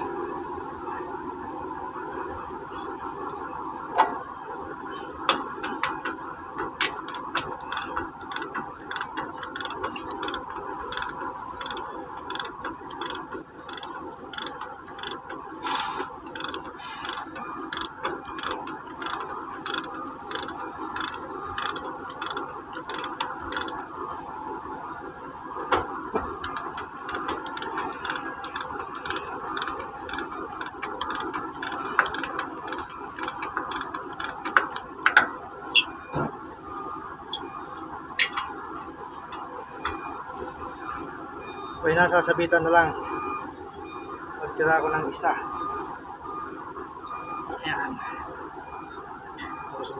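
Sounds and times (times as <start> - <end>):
ratchet wrench clicking: 7.0 - 23.8, 26.4 - 34.9.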